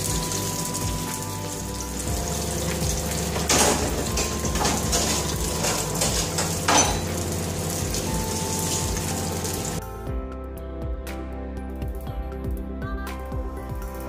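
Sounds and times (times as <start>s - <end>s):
fish sizzling in frying oil: 0.0s - 9.8s.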